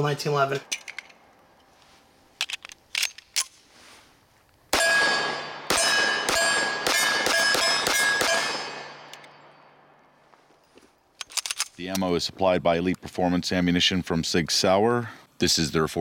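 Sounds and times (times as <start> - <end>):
pistol shots: 4.7 - 9.5
steel target ringing: 4.8 - 9.8.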